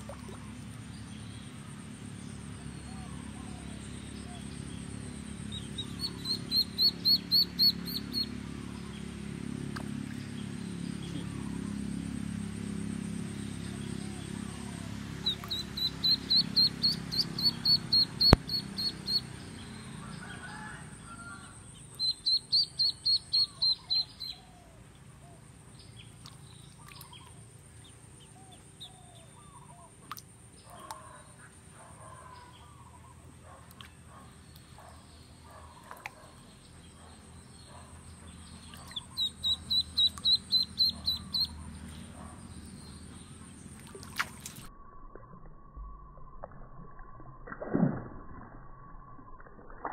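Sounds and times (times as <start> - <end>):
duckling peeping in distress: 5.5 - 8.3, 15.2 - 19.4, 22.0 - 24.4, 38.7 - 41.6.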